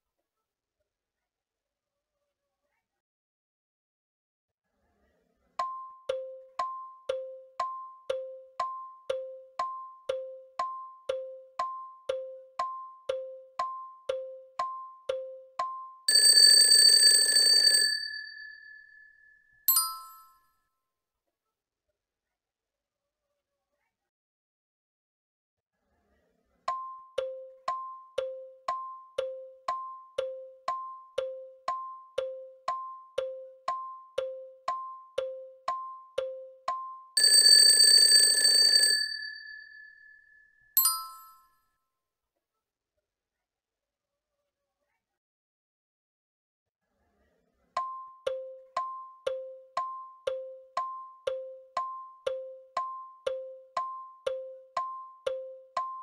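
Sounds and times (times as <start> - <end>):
tick-tock timer beeps: 5.6 - 17.2, 26.7 - 39.2, 47.8 - 56.0
loud ringing bell: 16.1 - 20.2, 37.2 - 41.3.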